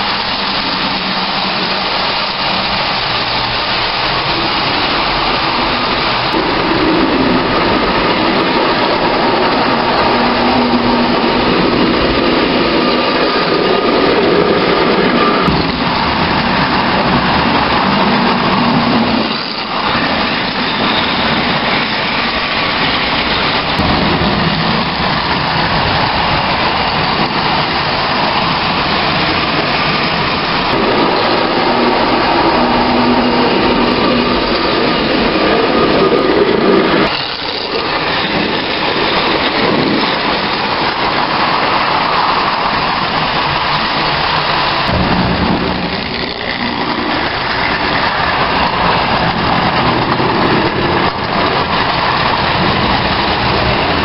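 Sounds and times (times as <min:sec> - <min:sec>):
toy train rattling on metal rails: 0:00.0 - 0:23.8, 0:25.1 - 0:44.9, 0:45.6 - 0:54.0.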